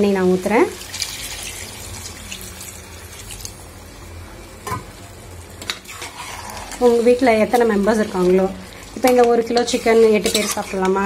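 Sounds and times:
water pouring and splashing: 0.8 - 3.6.

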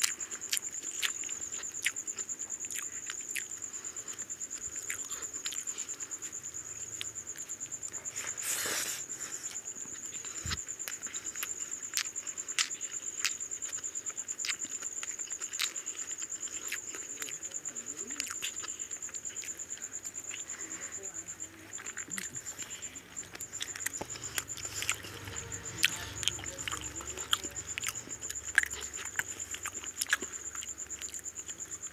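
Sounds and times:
people eating with fingers: 0.0 - 31.9
rapidly pulsing high chirp: 22.2 - 31.9.

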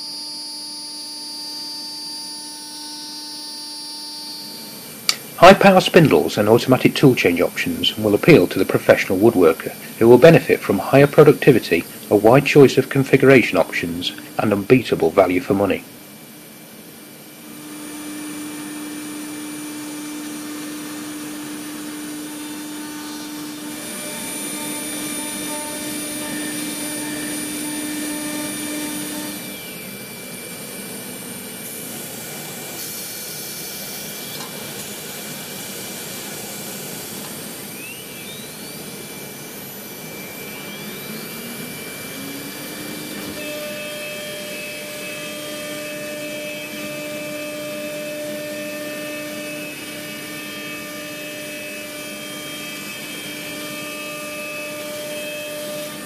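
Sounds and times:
constant machine whine: 0.0 - 56.0
router cutting wood: 0.0 - 56.0
short rising whines: 35.6 - 47.2.

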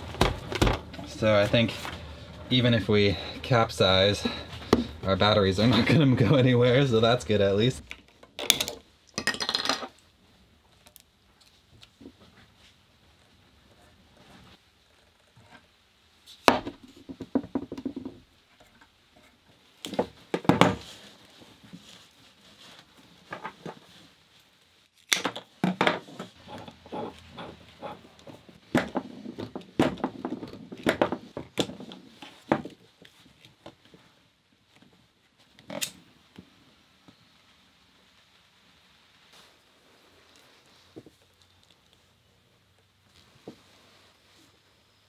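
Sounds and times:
tools clattering on wooden table: 7.9 - 10.0.

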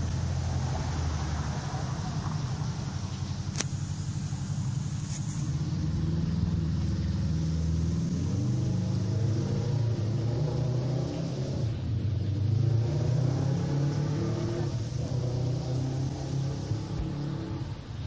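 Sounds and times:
low motor rumble: 0.0 - 18.0
sharp click: 3.5 - 3.8.

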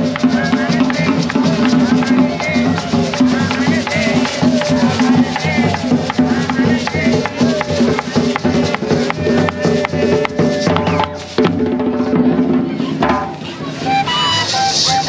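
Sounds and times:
shaker rattling: 0.0 - 11.5, 13.3 - 15.0
hand drums beaten in busy rhythm: 0.0 - 15.0
flute playing held notes: 13.6 - 15.0.

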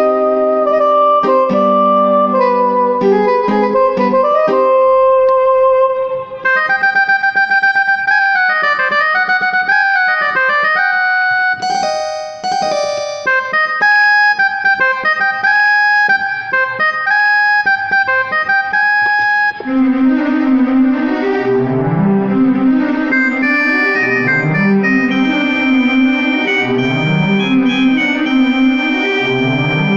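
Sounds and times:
keyboard melody: 0.0 - 29.9.

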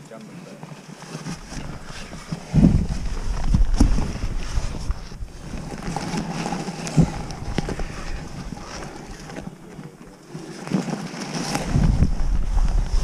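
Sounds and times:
wind buffeting microphone: 1.4 - 9.7, 11.4 - 13.0.

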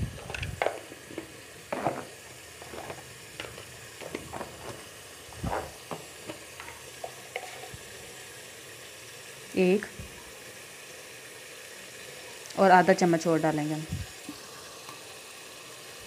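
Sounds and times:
faint sizzle of frying: 0.0 - 16.0
wooden spoon scraping a pot: 0.1 - 7.8.

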